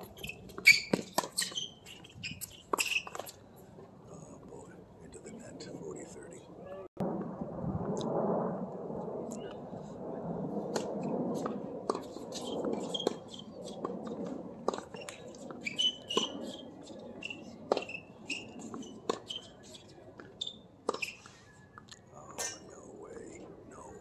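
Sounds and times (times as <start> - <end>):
short high squeaks: 0.0 - 3.4, 14.9 - 21.4.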